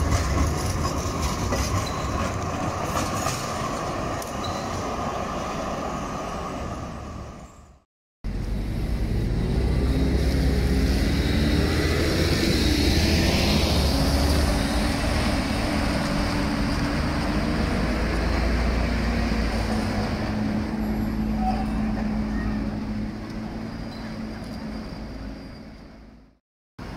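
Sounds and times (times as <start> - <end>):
low traffic rumble: 0.0 - 26.9
bus engine running: 8.3 - 26.9.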